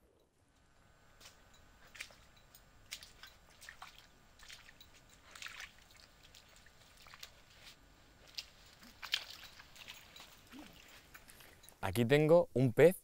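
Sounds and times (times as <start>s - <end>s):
wet clicks and drips in mud: 1.2s - 11.6s.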